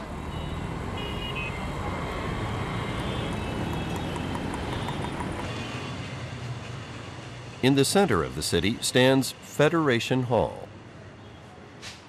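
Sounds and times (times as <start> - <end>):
passing vehicles rumble: 0.0 - 12.0.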